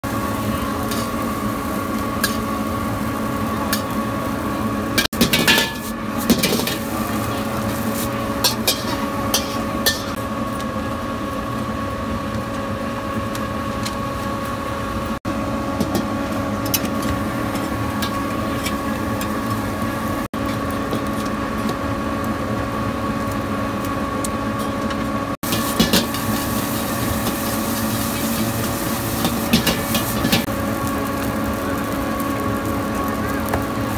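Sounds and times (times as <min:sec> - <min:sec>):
steady machine hum: 0:00.0 - 0:33.9
metal spatula scraping a wok: 0:07.8 - 0:10.2.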